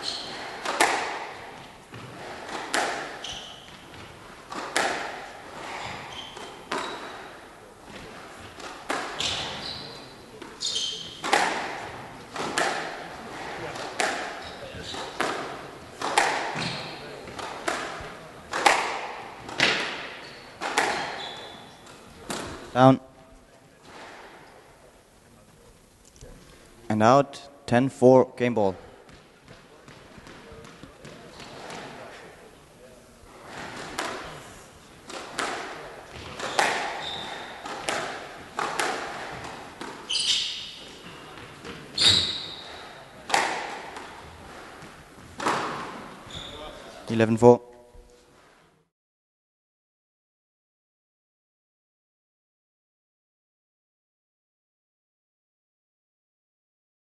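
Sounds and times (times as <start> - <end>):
high shoe squeaks: 0.0 - 0.8, 3.0 - 4.0, 5.6 - 7.3, 9.1 - 11.3, 14.4 - 15.2, 16.6 - 17.2, 20.1 - 21.8, 36.4 - 37.7, 40.0 - 43.0, 46.2 - 47.0
shoes squeaking on wooden floor: 0.0 - 12.6, 13.2 - 18.2, 19.4 - 22.7, 36.1 - 43.1, 44.1 - 47.0
squash ball hits: 0.0 - 22.7, 29.0 - 32.1, 33.3 - 34.4, 35.0 - 46.7.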